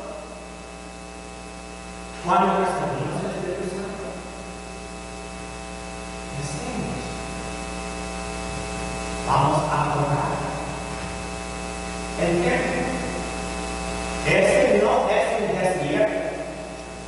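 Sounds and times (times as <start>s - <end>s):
electrical mains hum: 0.0s - 17.0s
man talking: 2.2s - 4.3s, 6.3s - 7.3s, 9.2s - 10.9s, 12.2s - 13.3s, 14.2s - 16.6s.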